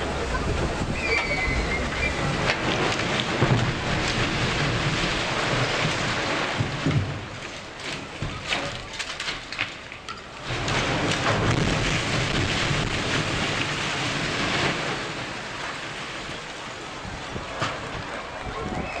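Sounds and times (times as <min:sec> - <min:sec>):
loud rumble of building collapsing: 0:00.0 - 0:19.0
crackles of falling debris: 0:01.0 - 0:19.0.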